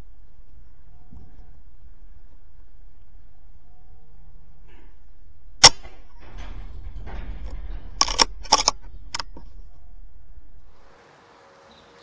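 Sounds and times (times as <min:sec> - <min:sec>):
air rifle shot: 0:05.6 - 0:06.0
sharp clicks: 0:05.6 - 0:09.8.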